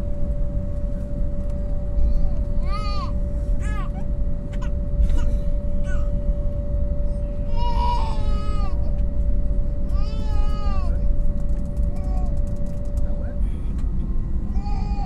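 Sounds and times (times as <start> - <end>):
airliner taxiing rumble and hum: 0.0 - 15.0
young child crying: 7.5 - 8.9, 9.9 - 11.0, 14.6 - 15.0.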